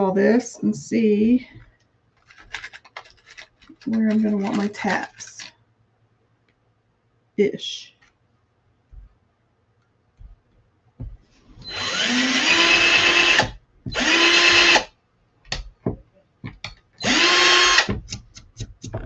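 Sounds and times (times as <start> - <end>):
cordless drill drilling into wood: 11.6 - 14.9, 17.0 - 17.9.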